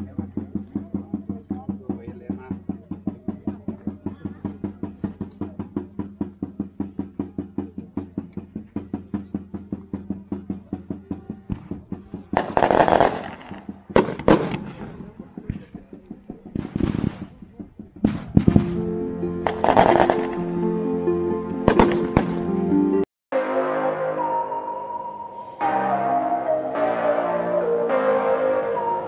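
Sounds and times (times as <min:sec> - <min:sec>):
music with a quick beat: 0:00.0 - 0:13.8, 0:15.4 - 0:20.6
fireworks banging: 0:00.0 - 0:20.5, 0:21.7 - 0:22.5.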